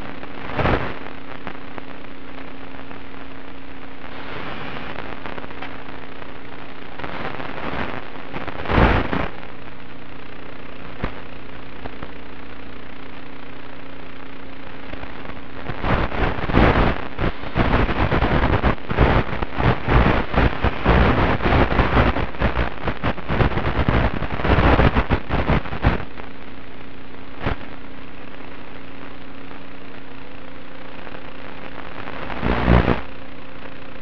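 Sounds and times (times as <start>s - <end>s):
crackling and popping static: 0.0s - 34.0s
steady electrical hum: 0.0s - 34.0s.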